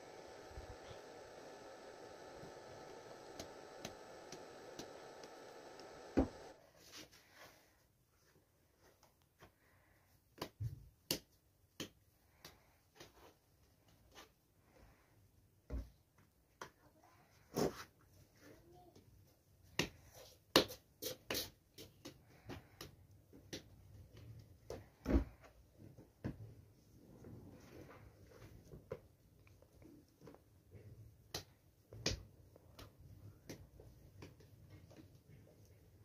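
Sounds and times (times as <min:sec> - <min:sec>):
hands patting bread dough: 0:10.2 - 0:14.1.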